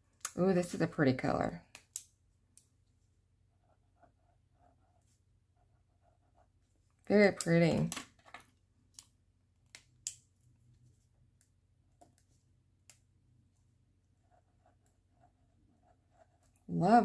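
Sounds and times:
pen scratching on paper: 3.5s - 6.6s, 14.2s - 16.8s.

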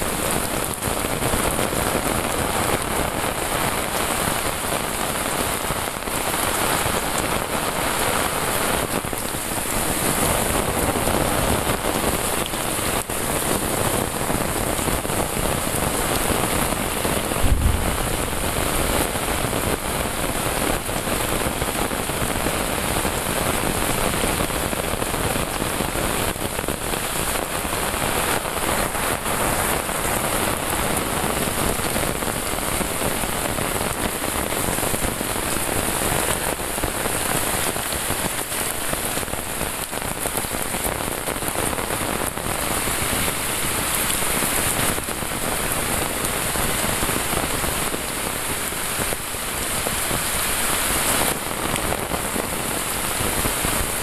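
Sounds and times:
heavy rain on path and foliage: 0.0s - 54.0s
low thump: 17.4s - 18.3s.

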